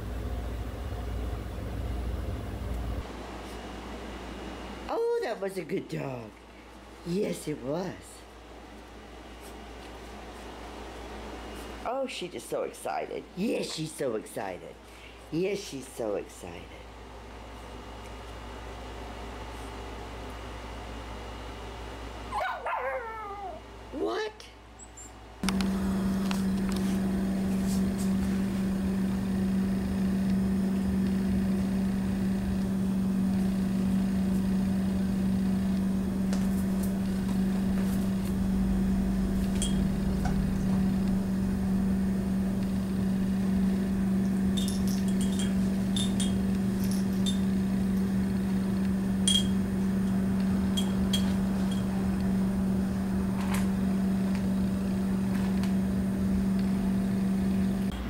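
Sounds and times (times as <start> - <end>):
low mechanical hum: 0.0 - 58.0
faint light clinks: 44.5 - 47.5, 49.3 - 51.9.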